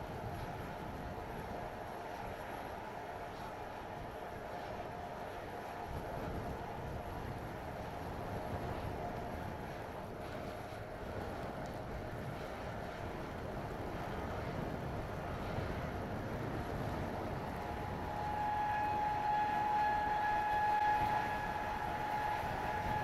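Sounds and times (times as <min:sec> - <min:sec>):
wind buffeting microphone: 0:00.0 - 0:23.0
high machine whine: 0:15.2 - 0:23.0.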